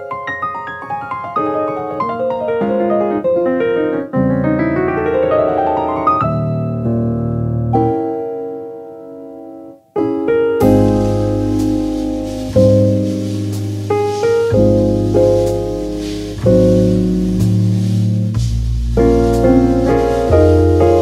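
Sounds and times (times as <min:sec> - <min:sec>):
piano music: 0:00.0 - 0:21.0
percussion: 0:10.6 - 0:21.0.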